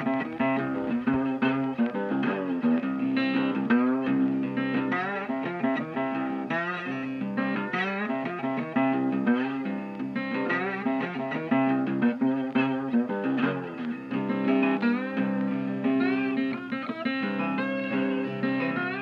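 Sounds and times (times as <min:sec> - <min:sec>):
guitar background music: 0:00.0 - 0:19.0.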